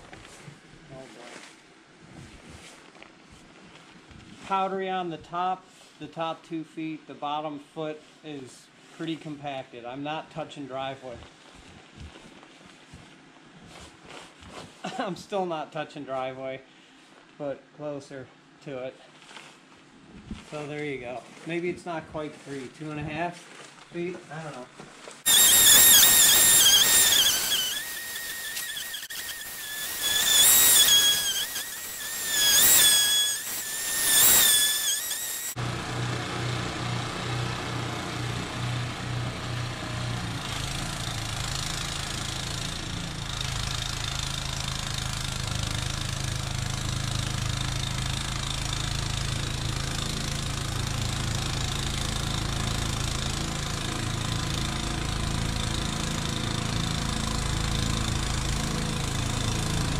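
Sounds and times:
sped-up engine high whine: 25.3s - 37.8s.

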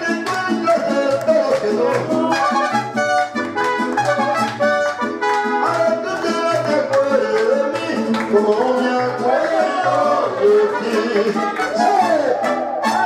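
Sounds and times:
mariachi band playing: 0.0s - 13.0s.

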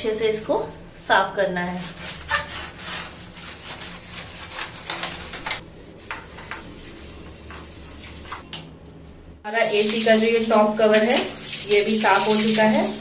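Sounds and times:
scrub pad rubbing plastic grille: 2.0s - 8.4s.

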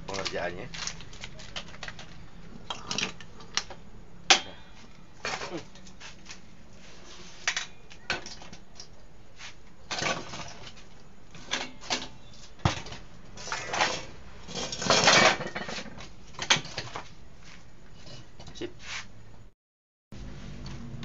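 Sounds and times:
metal rack clinking and scraping: 4.3s - 17.2s, 17.9s - 18.7s.

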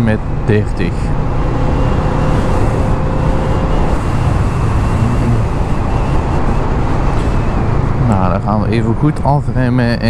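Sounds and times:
wind rush: 0.2s - 9.3s
motorcycle engine running: 1.1s - 8.1s.

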